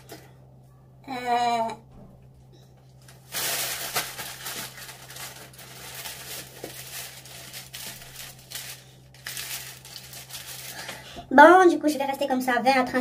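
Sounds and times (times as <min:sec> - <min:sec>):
plastic shower cap crinkling: 0:03.1 - 0:11.0.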